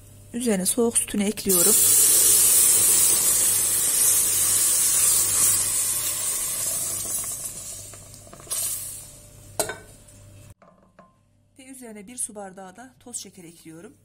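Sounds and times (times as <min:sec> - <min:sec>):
milk sizzling in hot pot: 0:01.4 - 0:10.6.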